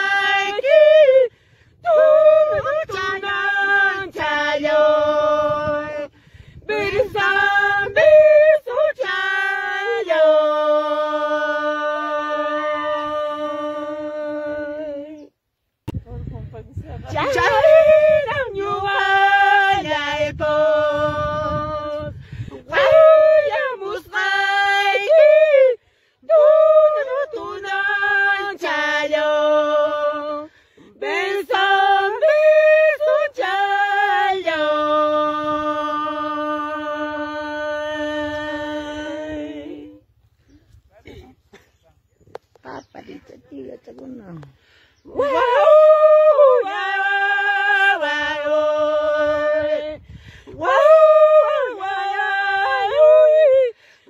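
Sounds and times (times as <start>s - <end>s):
woman singing unaccompanied: 0.0s - 15.4s, 16.7s - 40.1s, 44.0s - 53.9s
person singing a long high note: 45.1s - 53.8s.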